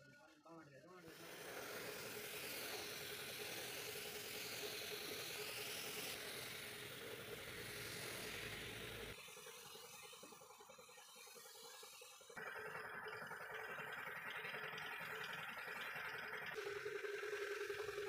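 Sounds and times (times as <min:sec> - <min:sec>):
compressed air hissing: 0:01.1 - 0:10.2.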